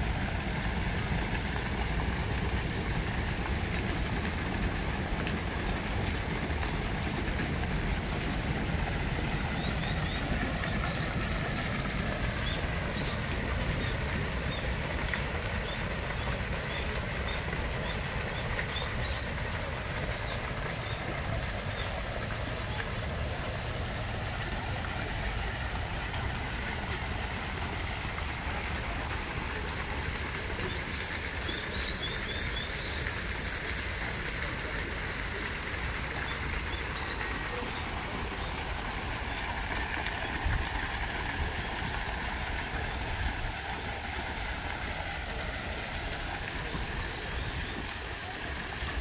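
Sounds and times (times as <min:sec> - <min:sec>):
low rumble and hiss: 0:00.0 - 0:49.0.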